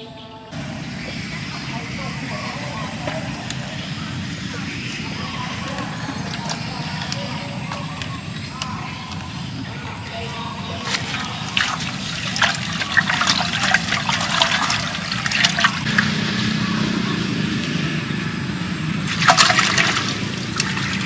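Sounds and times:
trickling running water: 0.6s - 17.2s, 19.0s - 21.0s.

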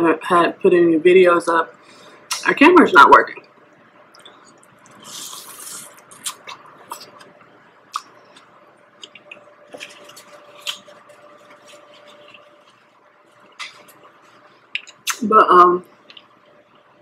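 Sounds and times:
mouth clicks and smacks: 4.1s - 10.9s, 13.4s - 14.0s, 14.7s - 15.3s, 16.1s - 16.3s
wet chewing: 4.1s - 15.2s.

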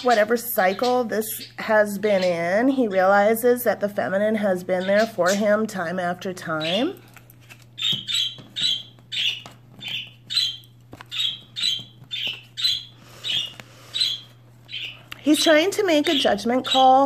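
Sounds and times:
high-pitched squawking calls: 6.5s - 7.0s, 7.8s - 17.0s.

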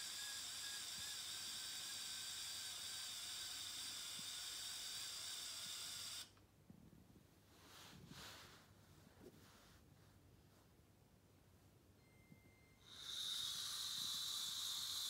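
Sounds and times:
small electric motors whirring: 0.0s - 6.3s, 12.8s - 15.0s.

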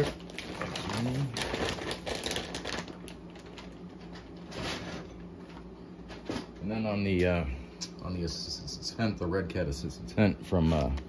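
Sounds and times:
plastic bags crinkling: 0.0s - 4.6s.

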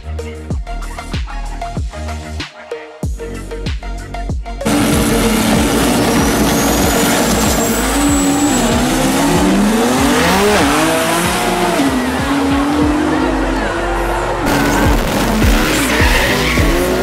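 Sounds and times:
race car engine revving: 4.6s - 17.0s.

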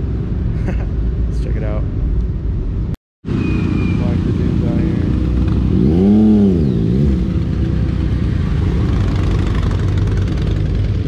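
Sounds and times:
motorcycle engines running: 3.3s - 11.0s.

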